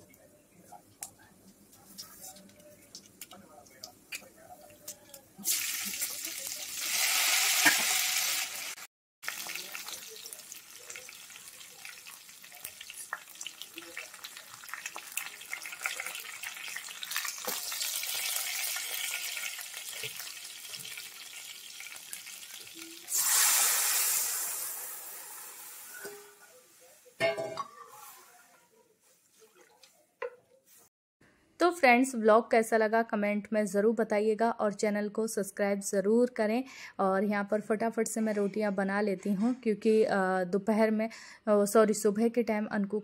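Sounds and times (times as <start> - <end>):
batter hissing in hot fat: 23.0 - 26.0
loud hiss of hot fat: 23.1 - 26.0.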